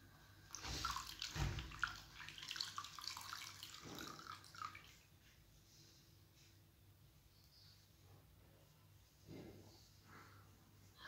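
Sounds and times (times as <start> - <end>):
wet cloth wrung out: 0.5 - 5.1
water splashing and dripping: 0.5 - 5.2.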